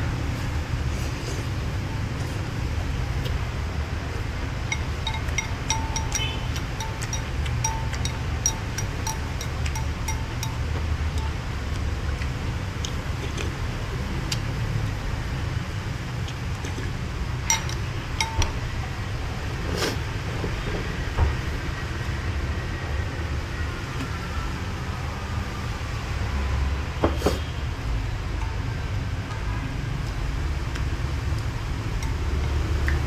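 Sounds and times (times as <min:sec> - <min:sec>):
spoon clinking ceramic bowl: 0:04.7 - 0:11.4, 0:17.5 - 0:18.6.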